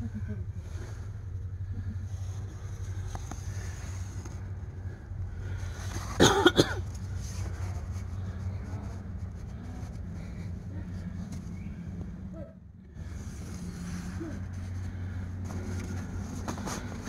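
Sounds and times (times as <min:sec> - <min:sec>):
steady low rumble: 0:00.0 - 0:17.0
man coughing: 0:06.2 - 0:06.8.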